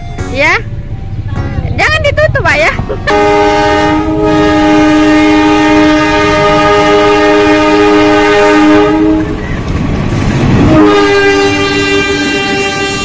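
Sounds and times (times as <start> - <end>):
locomotive air horn: 3.0 - 9.4, 10.6 - 13.0.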